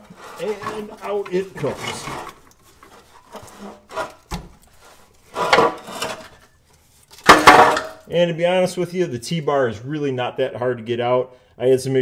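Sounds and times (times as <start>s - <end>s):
metal bar scraping: 0.0s - 6.6s
loud metal clunk: 7.2s - 8.0s.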